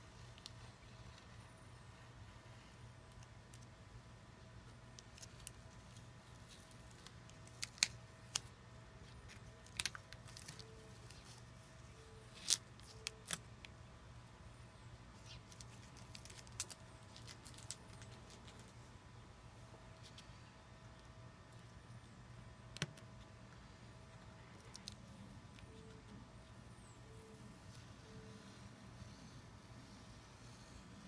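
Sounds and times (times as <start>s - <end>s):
faint steady low hum: 0.0s - 31.0s
hands handling tape and panel: 4.7s - 13.8s.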